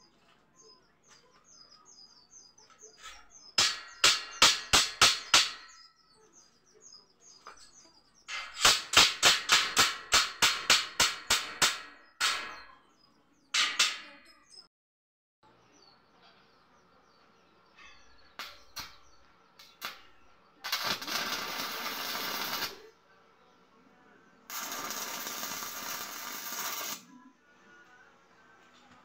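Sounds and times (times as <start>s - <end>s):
welding arc crackling: 8.3s - 11.9s, 19.6s - 22.8s, 24.5s - 27.1s.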